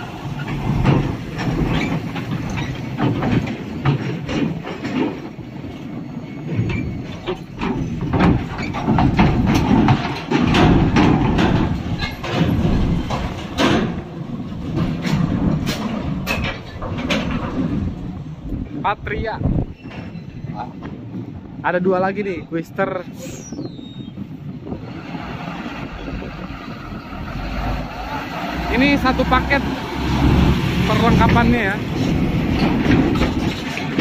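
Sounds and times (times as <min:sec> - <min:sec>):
metallic clanks on steel ramp: 0:00.0 - 0:05.8, 0:06.4 - 0:18.7, 0:28.7 - 0:34.0
diesel engine rumble: 0:00.0 - 0:22.5, 0:23.2 - 0:34.0.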